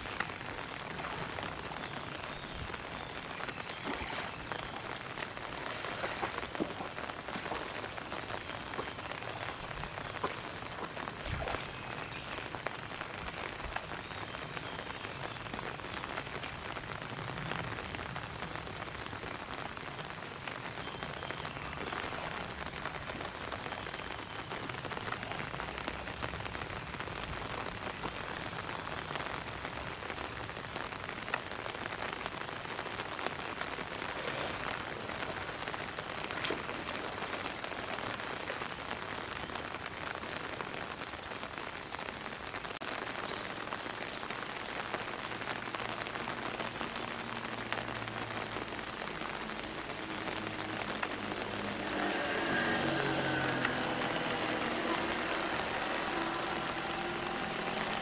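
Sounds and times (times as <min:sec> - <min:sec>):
rhinoceros sloshing in muddy water: 0:03.4 - 0:12.2, 0:33.8 - 0:38.1, 0:51.3 - 0:58.0.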